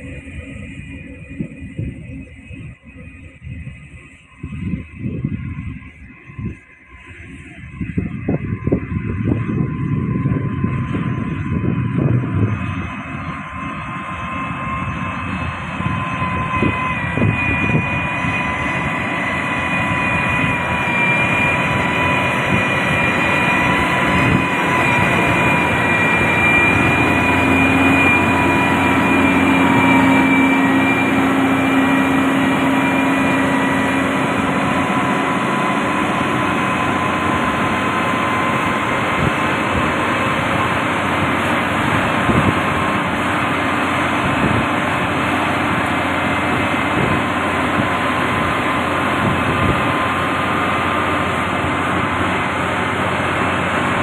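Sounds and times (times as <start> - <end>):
diesel engine noise: 0.0 - 54.0
lower hum: 0.0 - 54.0
steady high whine: 0.0 - 54.0.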